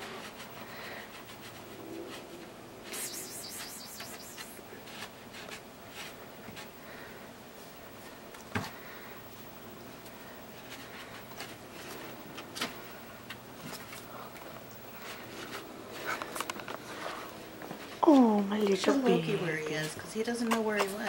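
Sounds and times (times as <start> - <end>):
animals scuffling and rustling: 0.0 - 21.0.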